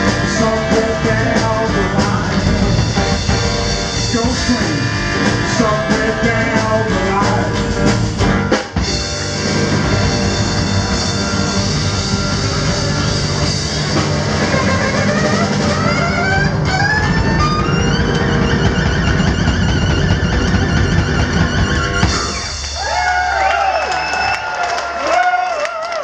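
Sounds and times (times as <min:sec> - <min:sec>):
man singing: 0:00.0 - 0:02.8, 0:04.0 - 0:07.9
live rock and roll band: 0:00.0 - 0:25.4.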